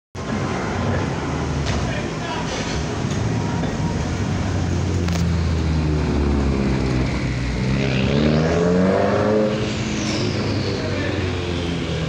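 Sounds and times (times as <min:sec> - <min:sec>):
truck diesel engine revving: 0:04.1 - 0:12.0.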